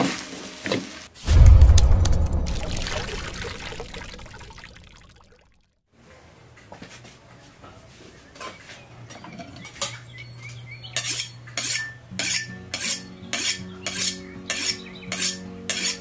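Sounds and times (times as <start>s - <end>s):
blade scraping on honing steel: 11.0s - 16.0s.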